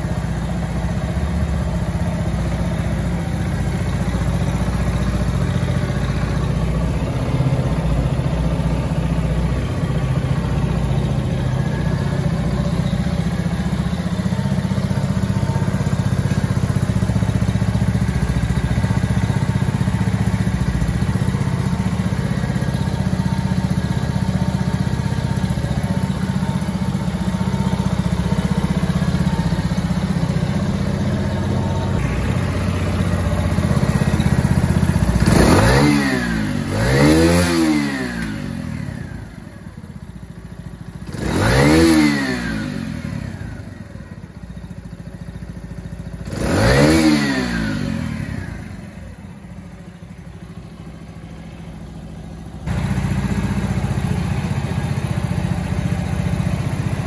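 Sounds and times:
small motorbike engine idling: 0.0s - 57.0s
engine revving blips: 35.2s - 38.7s.

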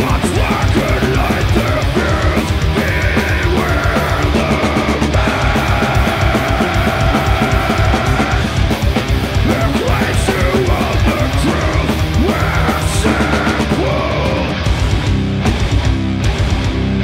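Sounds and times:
metal band playing live: 0.0s - 17.0s.

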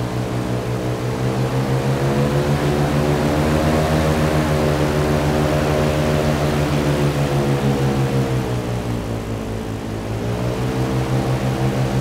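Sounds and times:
hovercraft engine and propeller: 0.0s - 12.0s.

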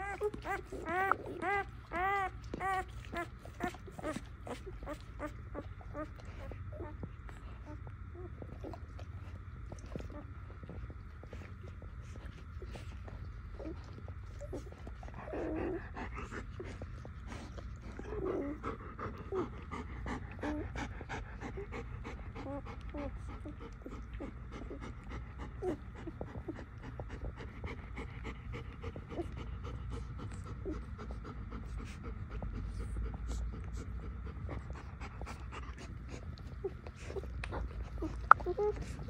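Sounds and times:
puppies squeaking: 0.0s - 6.1s
dog panting: 0.0s - 39.0s.

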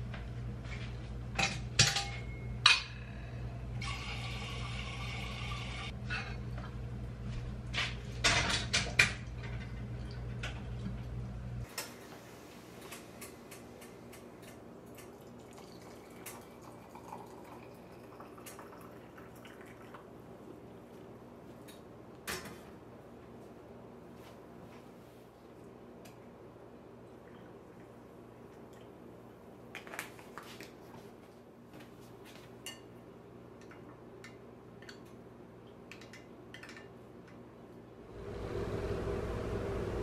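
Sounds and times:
hot water pouring into mug: 14.9s - 20.1s.

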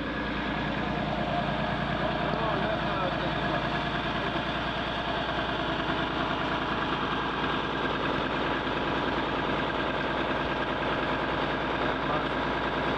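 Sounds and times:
vehicle engine idling: 0.0s - 12.9s.

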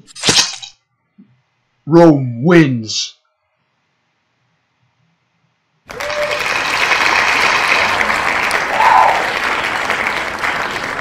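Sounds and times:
crowd applause: 5.9s - 11.0s
loud call from crowd: 5.9s - 11.0s.

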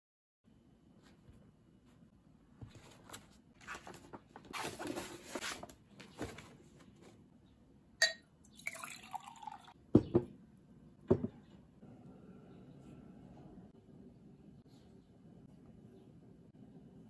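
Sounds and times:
paper rustling and sliding: 2.7s - 6.6s
glass jar clinking: 8.0s - 9.7s
jar knocking on wooden desk: 11.1s - 11.4s.

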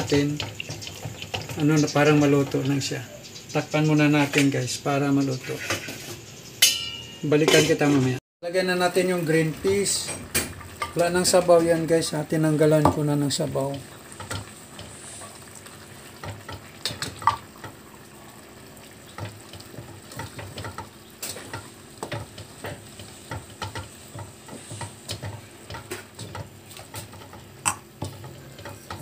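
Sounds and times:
faint sizzling: 0.0s - 29.0s
wooden spoon scraping metal pot: 5.2s - 6.3s, 19.1s - 29.0s.

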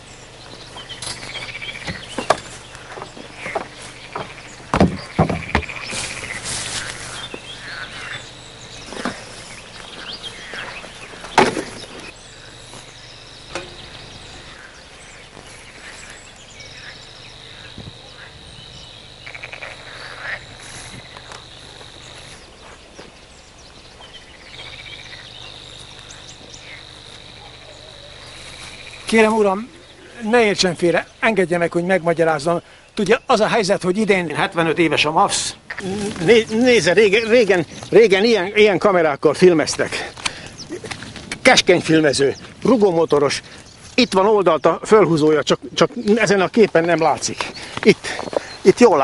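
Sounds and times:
rustling: 0.5s - 18.0s, 35.7s - 38.0s
sharp knocks on wooden boxes: 1.8s - 6.0s, 11.2s - 11.8s
high-pitched insect trill: 12.1s - 22.8s, 24.0s - 31.3s.

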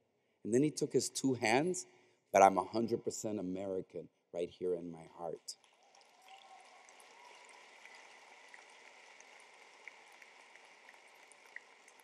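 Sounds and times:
faint audience applause: 5.6s - 12.0s.

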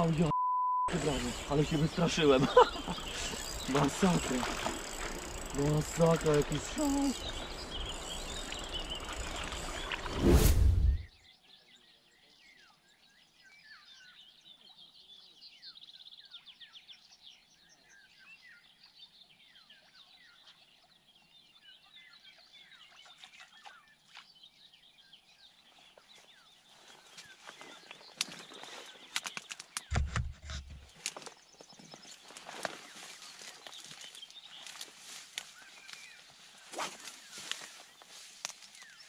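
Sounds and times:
small birds chirping and whistling: 0.0s - 10.4s, 31.2s - 39.0s.

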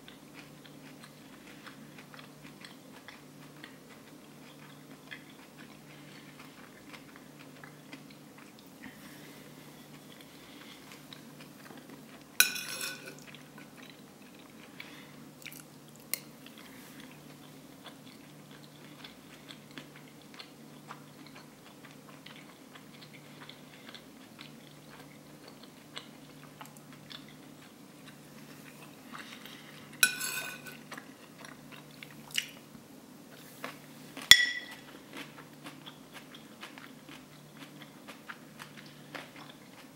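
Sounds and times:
close chewing: 0.0s - 12.4s, 13.1s - 30.0s, 30.8s - 32.7s, 33.3s - 39.9s
cutlery clinking on a plate: 12.4s - 13.3s, 30.0s - 30.8s, 34.3s - 34.8s.

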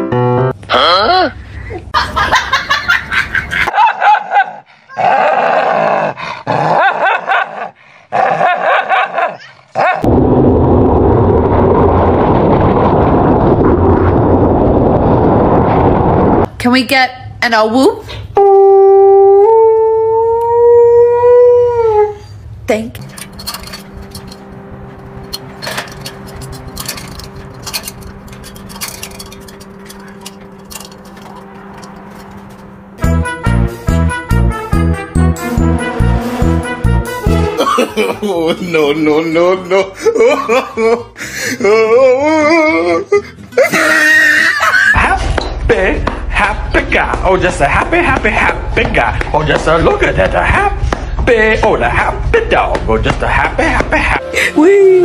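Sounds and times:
wind: 0.6s - 33.2s
dog barking and snarling: 3.7s - 10.1s
steady low hum: 19.1s - 38.6s
dog claws on metal ladder: 23.0s - 24.5s, 25.3s - 32.7s.

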